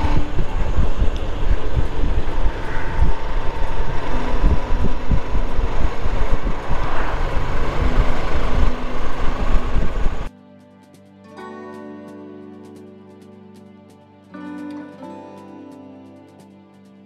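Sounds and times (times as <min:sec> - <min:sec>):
motorcycle engine: 0:00.0 - 0:10.3
road noise: 0:00.0 - 0:10.3
wind buffeting on microphone: 0:00.0 - 0:10.3.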